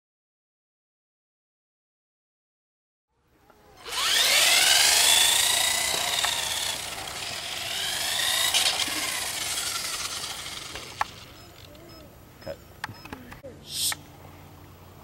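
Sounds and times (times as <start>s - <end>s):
remote-control car motor whining: 3.8s - 12.1s.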